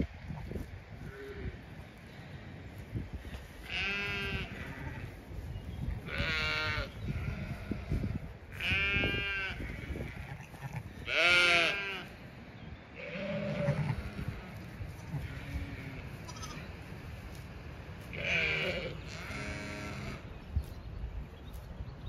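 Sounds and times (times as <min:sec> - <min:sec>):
wind rumble on microphone: 0:00.0 - 0:22.0
sheep bleating: 0:03.7 - 0:05.1, 0:06.1 - 0:08.0, 0:08.6 - 0:12.1, 0:13.0 - 0:16.7, 0:18.1 - 0:20.2.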